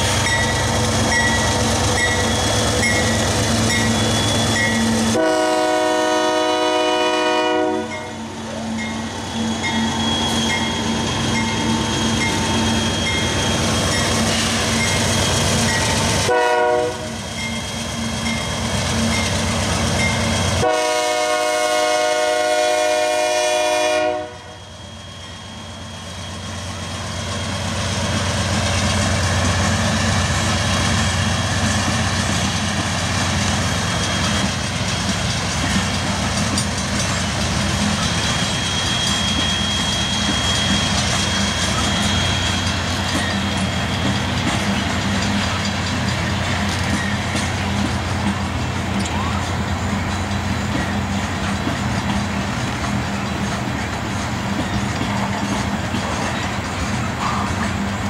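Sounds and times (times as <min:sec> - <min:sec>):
freight train rumbling past: 0:00.0 - 0:58.0
locomotive air horn blasts: 0:05.1 - 0:08.2, 0:16.3 - 0:17.2, 0:20.6 - 0:24.6.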